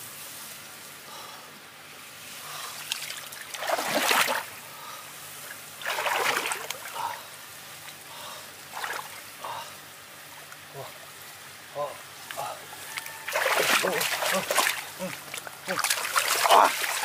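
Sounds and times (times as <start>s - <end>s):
hands splashing in muddy water: 5.8s - 6.9s, 13.3s - 17.0s.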